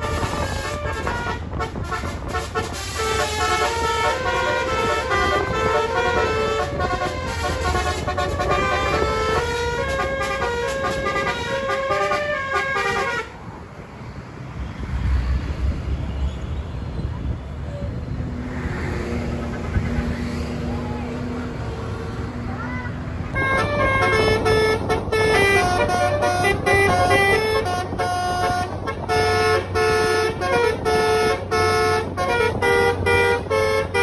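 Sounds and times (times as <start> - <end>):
bus horn playing melody: 0.0 - 13.4, 23.3 - 34.0
low engine and road rumble: 0.0 - 34.0.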